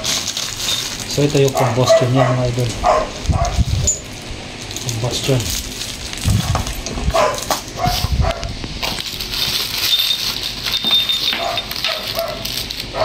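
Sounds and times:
plastic packaging crinkling: 0:00.0 - 0:13.0
dog yelping: 0:01.6 - 0:04.0, 0:07.1 - 0:08.6, 0:10.9 - 0:13.0.

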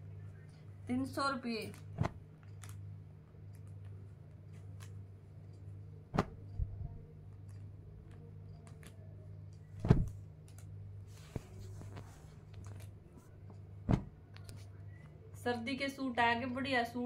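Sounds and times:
steady low hum: 0:00.0 - 0:17.0
sharp thumps: 0:13.8 - 0:14.2.

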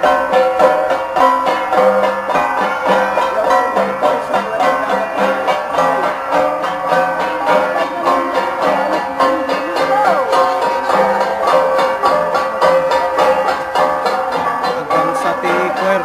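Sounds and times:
bronze gongs struck in rhythm: 0:00.0 - 0:16.0.

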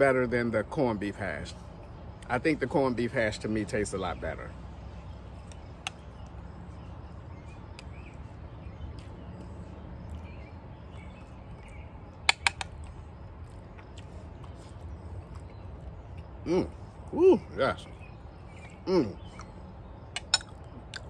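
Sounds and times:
faint bird chirps: 0:13.7 - 0:21.0.

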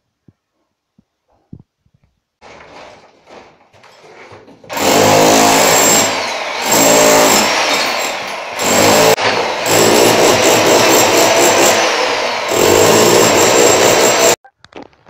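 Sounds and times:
rotary hammer chipping tiles: 0:08.6 - 0:11.8, 0:12.5 - 0:14.4.

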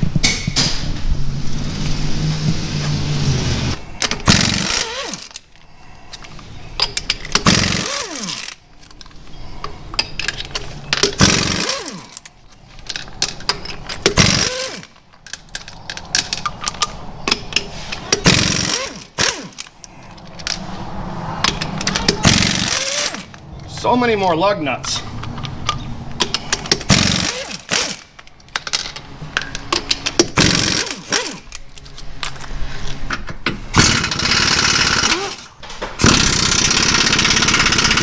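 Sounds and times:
pneumatic impact wrench hammering: 0:04.0 - 0:05.4, 0:06.8 - 0:08.6, 0:10.1 - 0:12.3, 0:13.0 - 0:15.6, 0:16.8 - 0:19.7, 0:21.5 - 0:23.4, 0:26.2 - 0:28.8, 0:29.7 - 0:31.6, 0:33.7 - 0:38.0
metallic clicks of socket and nuts: 0:04.0 - 0:07.5, 0:08.4 - 0:14.2, 0:14.8 - 0:20.6, 0:21.4 - 0:22.2, 0:24.8 - 0:32.6.

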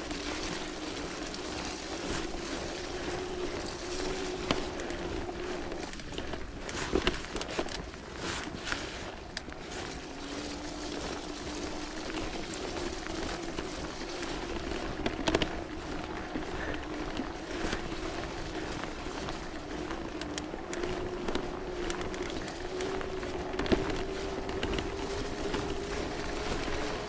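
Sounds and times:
bike rattling: 0:00.0 - 0:27.0
electric motor hum: 0:00.0 - 0:27.0.

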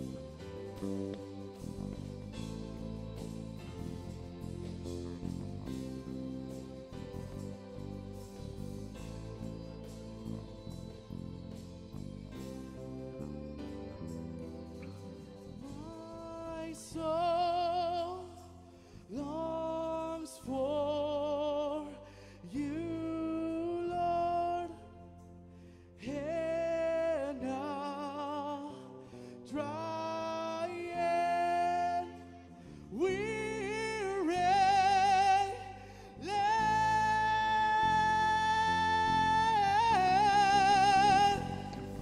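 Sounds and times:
keyboard and band accompaniment: 0:00.0 - 0:18.3, 0:33.0 - 0:42.0
person singing long wavering notes: 0:29.5 - 0:42.0.

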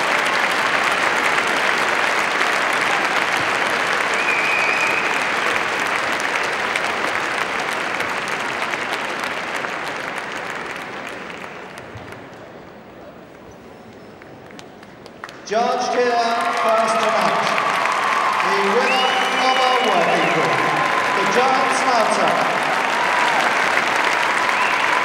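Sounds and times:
crowd applauding: 0:00.0 - 0:25.0
short high whistle: 0:04.2 - 0:05.2.

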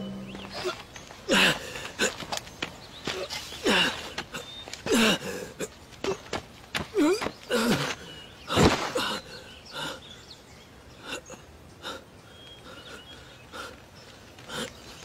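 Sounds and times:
man grunting and gasping: 0:00.6 - 0:02.2, 0:04.9 - 0:05.7.

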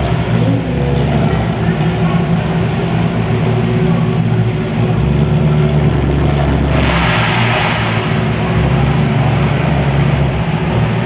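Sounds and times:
race car engines running: 0:00.0 - 0:11.0.

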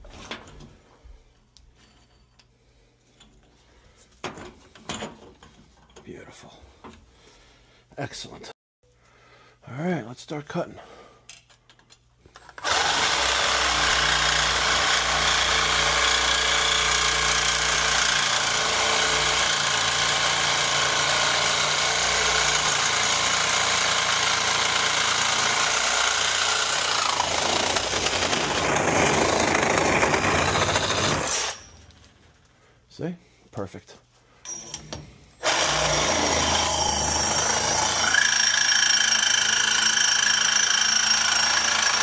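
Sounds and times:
reciprocating saw cutting steel pipe: 0:12.6 - 0:31.8.

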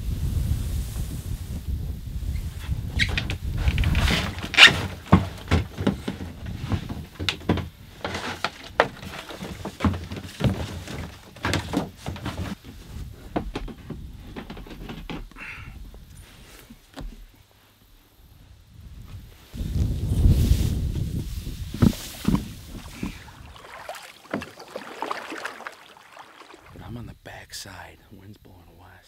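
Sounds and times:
low wind rumble: 0:00.0 - 0:04.6, 0:18.1 - 0:27.4
hollow knocks of plastic kayak: 0:03.2 - 0:15.3, 0:21.7 - 0:26.8.

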